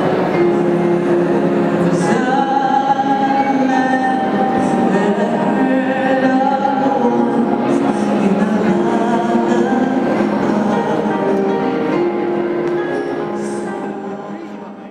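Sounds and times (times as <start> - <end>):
slow music with singing: 0.0 - 14.9.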